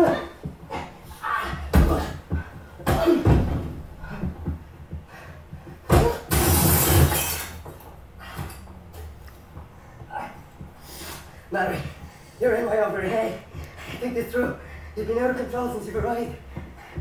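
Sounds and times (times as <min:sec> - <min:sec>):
body thudding on floor: 0:00.0 - 0:07.8.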